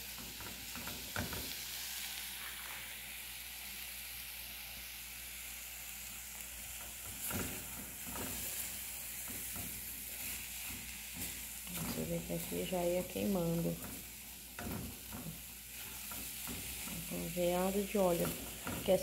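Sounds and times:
sausage sizzling in a pot: 0:00.0 - 0:19.0
spoon stirring and scraping: 0:07.3 - 0:19.0.

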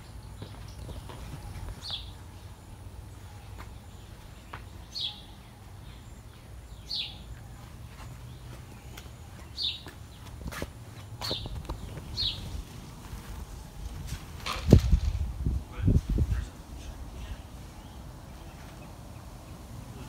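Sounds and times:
bird chirping: 0:00.0 - 0:10.5, 0:11.2 - 0:12.8.

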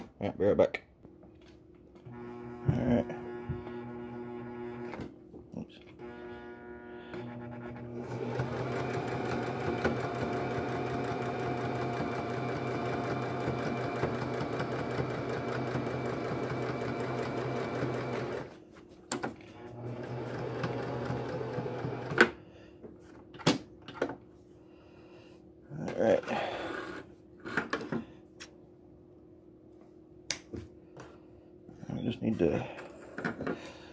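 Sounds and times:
sewing machine stitching: 0:07.1 - 0:18.5, 0:19.7 - 0:22.3.

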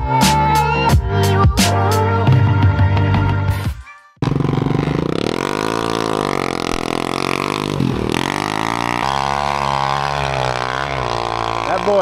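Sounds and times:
dirt bike engine revving: 0:04.2 - 0:12.0.

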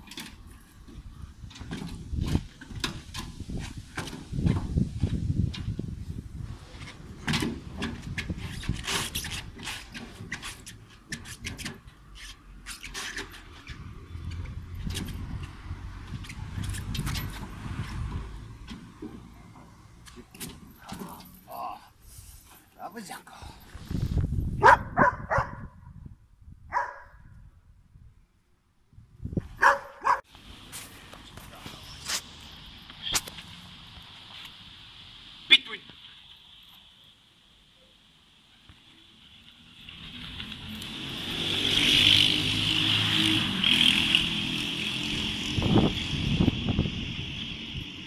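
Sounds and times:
shoes scraping on metal stairs: 0:06.6 - 0:21.5
dog barking: 0:24.6 - 0:25.7, 0:26.7 - 0:27.2, 0:29.6 - 0:30.3.

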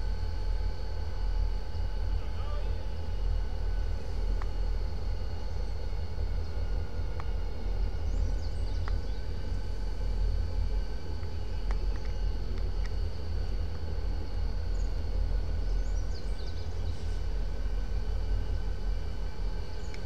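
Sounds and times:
distant diesel locomotive idling: 0:01.7 - 0:12.5
faint clicks: 0:11.2 - 0:13.0.

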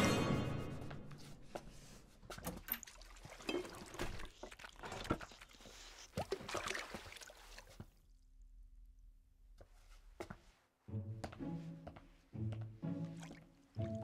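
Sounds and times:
water splashing and dribbling: 0:02.3 - 0:08.2, 0:12.8 - 0:14.0.

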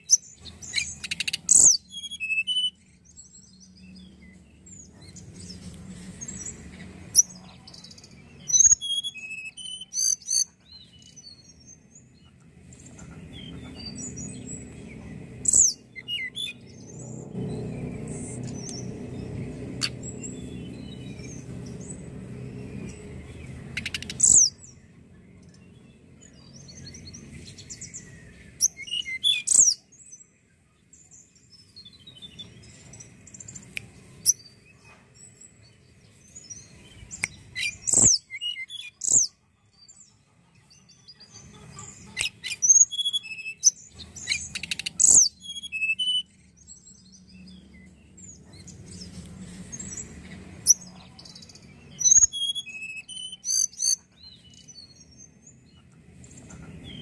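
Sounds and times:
bird singing high trills: 0:00.0 - 0:05.6, 0:06.2 - 0:12.1, 0:15.4 - 0:24.8, 0:25.7 - 0:30.2, 0:36.3 - 0:39.3, 0:42.0 - 0:49.0, 0:49.7 - 0:55.6
faint low rumble: 0:11.6 - 0:28.6.

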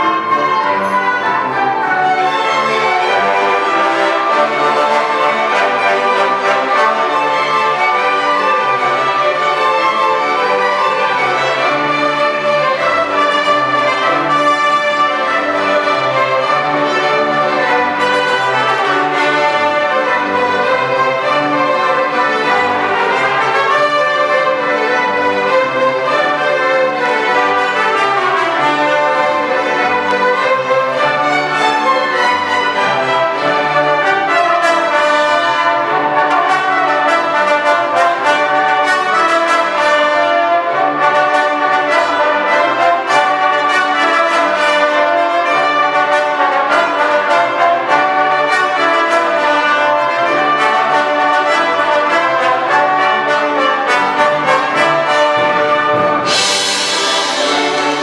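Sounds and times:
symphony orchestra playing: 0:00.0 - 0:58.0.

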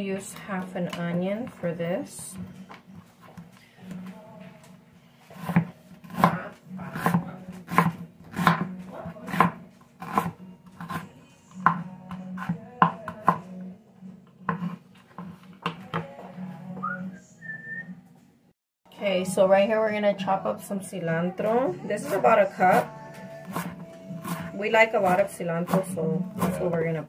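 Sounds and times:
knife striking cutting board: 0:05.4 - 0:08.7.

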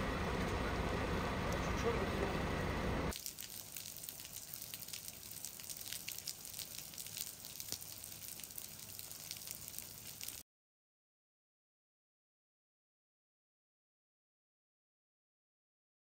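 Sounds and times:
fire engine engine rumbling: 0:00.0 - 0:03.2
water dripping into puddles: 0:03.1 - 0:10.4.

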